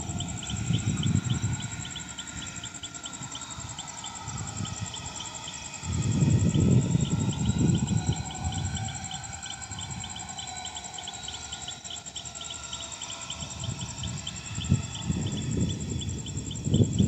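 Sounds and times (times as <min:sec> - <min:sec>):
wind on microphone: 0:00.0 - 0:02.7, 0:05.8 - 0:10.2, 0:13.4 - 0:17.0
insects chirping: 0:00.0 - 0:17.0.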